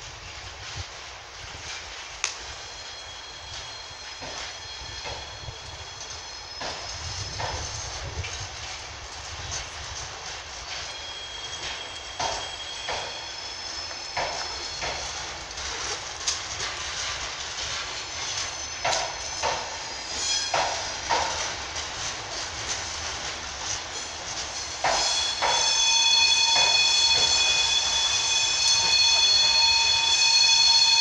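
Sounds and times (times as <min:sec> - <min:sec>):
train wheels clicking over rail joints: 0:00.4 - 0:31.0
high-pitched wheel squeal: 0:02.6 - 0:08.2, 0:10.6 - 0:15.9, 0:16.6 - 0:21.6, 0:23.7 - 0:31.0.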